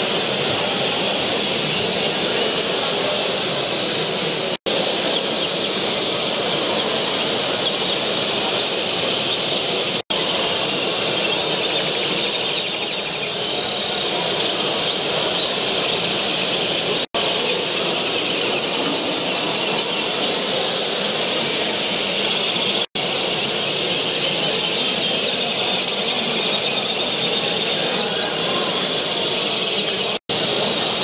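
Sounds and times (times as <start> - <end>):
canaries chirping: 0.0 - 31.0.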